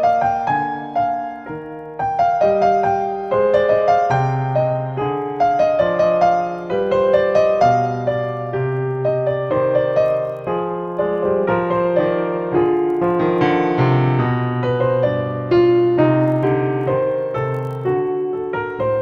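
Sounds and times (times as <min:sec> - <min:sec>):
slow piano melody: 0:00.0 - 0:19.0.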